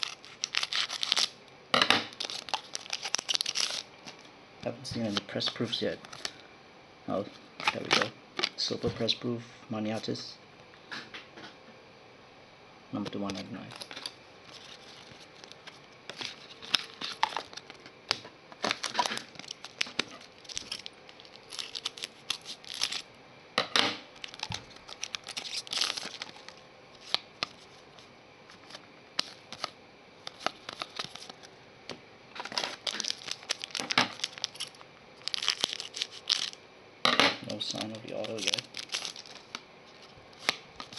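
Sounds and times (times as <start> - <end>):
trading cards rustling: 0.0 - 1.3, 2.2 - 4.2, 4.9 - 6.4, 7.6 - 8.6, 13.0 - 23.1, 24.2 - 31.5, 32.4 - 36.6, 37.5 - 40.9
wrapper crinkling: 0.0 - 1.4, 2.1 - 4.2, 13.2 - 23.1, 24.1 - 27.8, 28.5 - 31.5, 32.4 - 36.6, 37.5 - 40.9.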